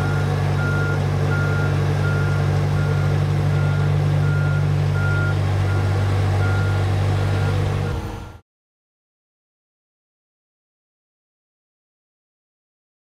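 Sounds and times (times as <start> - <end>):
engine droning: 0.0 - 8.4
reversing alarm beeping: 0.0 - 8.4.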